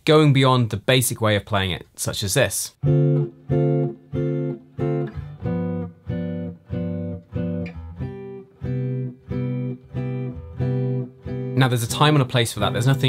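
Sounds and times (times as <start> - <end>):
electric guitar strummed chords: 2.8 - 11.6.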